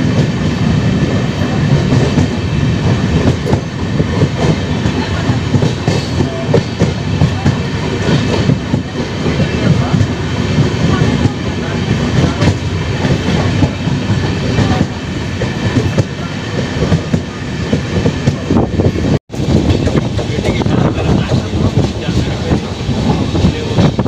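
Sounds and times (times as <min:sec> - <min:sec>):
train coach rumble: 0:00.0 - 0:24.0.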